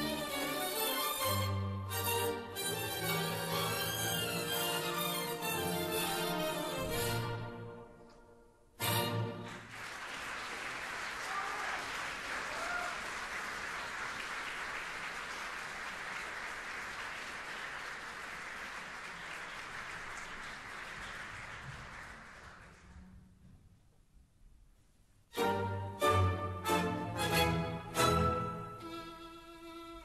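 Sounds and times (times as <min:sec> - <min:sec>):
audience applauding: 0:08.9 - 0:23.0.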